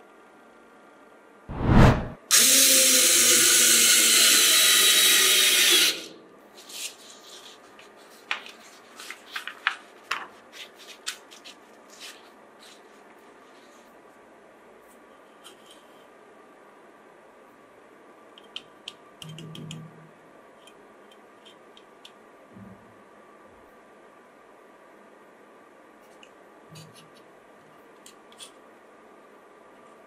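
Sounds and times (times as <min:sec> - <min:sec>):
electric drill into wood: 0:02.3 - 0:06.1
paper rustling: 0:06.6 - 0:13.8.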